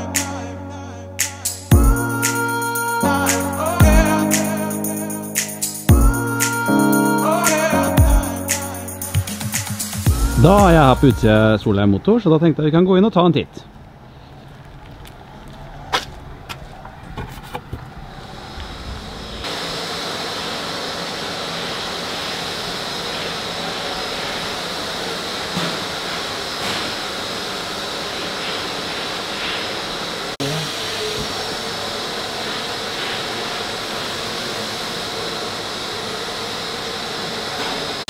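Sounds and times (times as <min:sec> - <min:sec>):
workshop machinery hissing: 0:01.2 - 0:11.7, 0:18.1 - 0:38.0.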